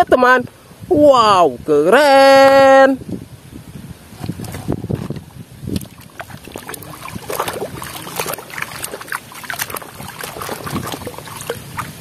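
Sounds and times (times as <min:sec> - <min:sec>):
water sloshing and splashing: 0:04.0 - 0:12.0
brush scrubbing underwater: 0:04.1 - 0:12.0.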